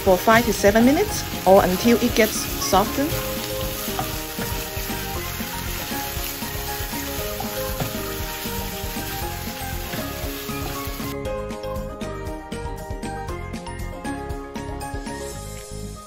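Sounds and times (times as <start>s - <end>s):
onions sizzling in oil: 0.0s - 11.2s
spatula stirring in pan: 1.2s - 11.2s.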